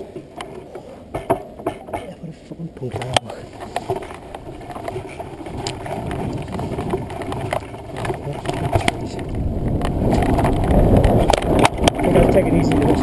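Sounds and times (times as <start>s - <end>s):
bike knocks and rattles: 0.0s - 2.2s, 2.9s - 13.0s
bike tyres rumbling on dirt: 2.8s - 13.0s.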